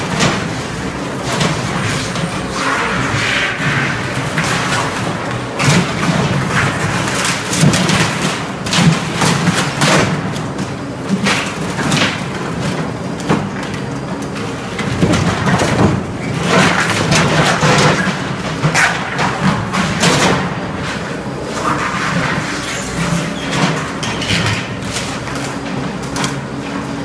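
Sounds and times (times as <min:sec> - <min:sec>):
wood cracking and crashing: 0:14.7 - 0:21.0.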